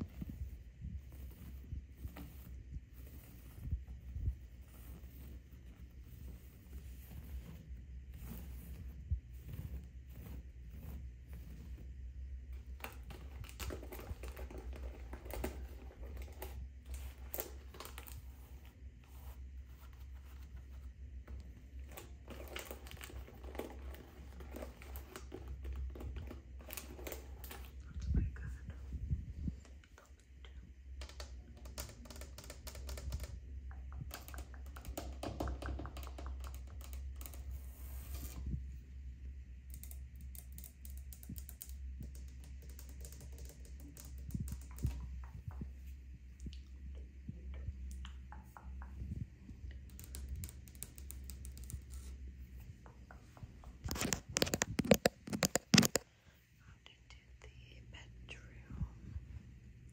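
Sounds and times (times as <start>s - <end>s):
fingernails tapping on plastic: 31.0s - 37.3s.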